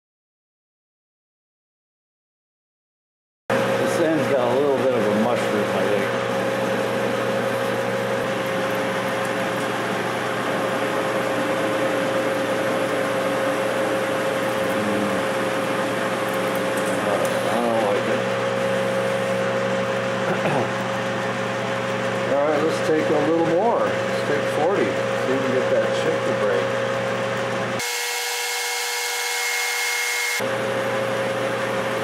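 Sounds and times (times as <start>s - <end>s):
metal lathe whining: 27.8s - 30.4s.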